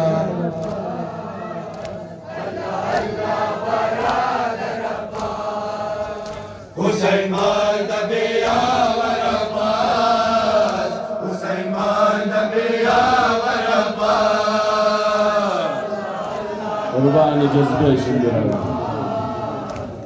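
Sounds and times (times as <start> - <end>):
man chanting a lament: 16.7 - 19.7.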